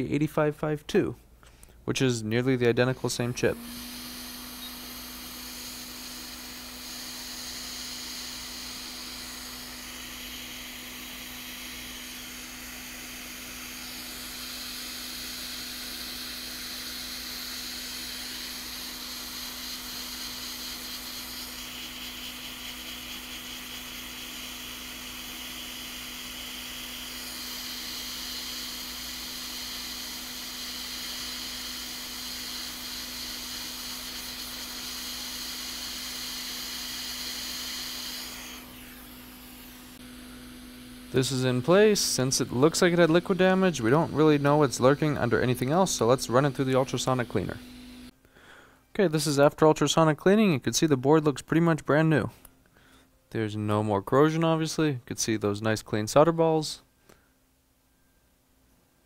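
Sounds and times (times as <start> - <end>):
hot air station airflow hiss: 2.9 - 47.6.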